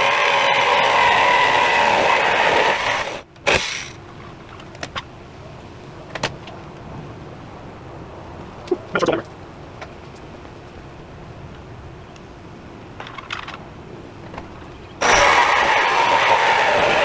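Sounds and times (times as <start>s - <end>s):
power saw cutting sheet metal: 0.0s - 4.0s, 15.0s - 17.0s.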